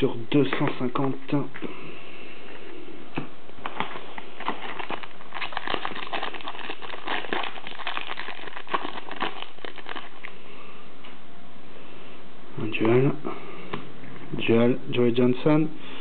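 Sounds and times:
foil wrapper crinkling: 0:03.6 - 0:10.4.

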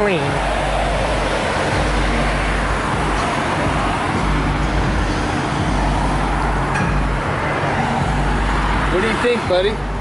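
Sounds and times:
road traffic noise: 0:00.0 - 0:10.0.

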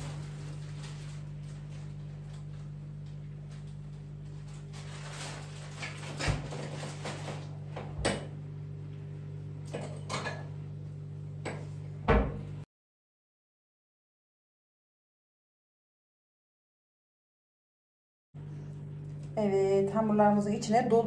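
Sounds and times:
steady low hum: 0:00.0 - 0:12.6, 0:18.4 - 0:21.0.

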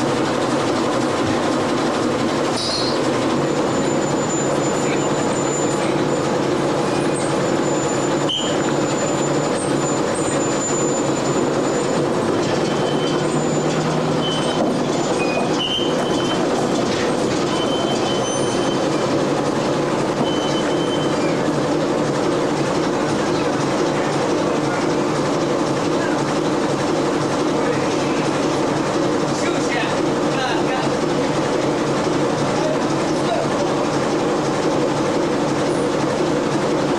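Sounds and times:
boat engine rumble: 0:00.0 - 0:36.9
short high squeaks: 0:02.5 - 0:19.1, 0:20.2 - 0:21.5.

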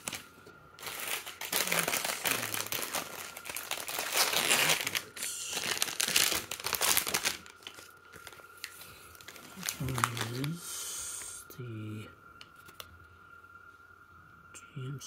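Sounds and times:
packaging crinkling and rustling: 0:00.0 - 0:10.6.

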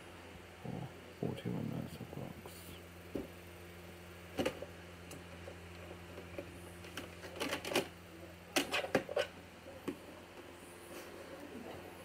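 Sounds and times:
low steady hum: 0:00.0 - 0:12.0
plastic case clicks and rattles: 0:06.9 - 0:07.9.

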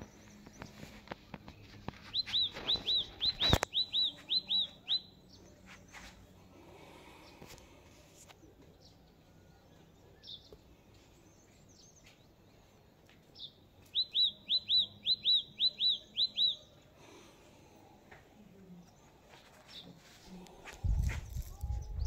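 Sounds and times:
small bird chirping: 0:00.0 - 0:06.3, 0:08.4 - 0:16.8
quick whistled bird notes: 0:02.1 - 0:05.0.

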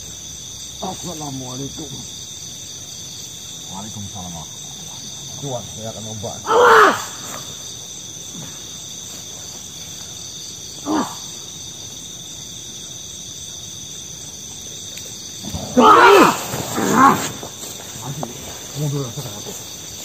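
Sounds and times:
crickets chirping: 0:00.0 - 0:20.0
men shouting: 0:06.1 - 0:07.6, 0:15.4 - 0:18.2.

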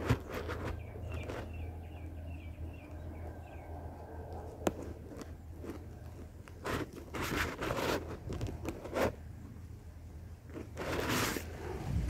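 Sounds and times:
rustling and crunching: 0:00.0 - 0:01.8, 0:02.8 - 0:12.0
small bird chirping: 0:00.2 - 0:04.6.

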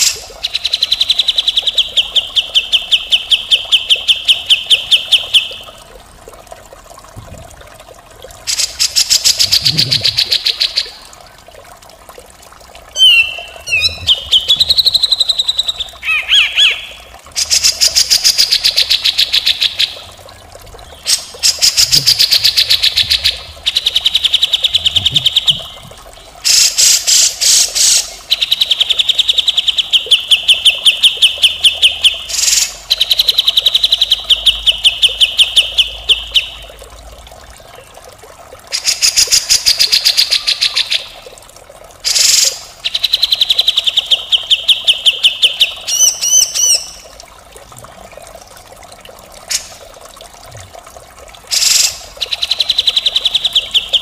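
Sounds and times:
bird singing rattling phrases: 0:13.0 - 0:17.1.

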